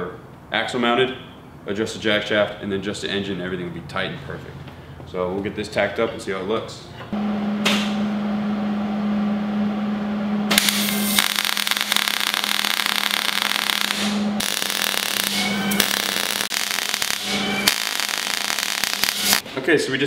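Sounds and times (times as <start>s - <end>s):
steady low hum: 7.1s - 14.5s
welding arc crackling: 10.5s - 19.4s.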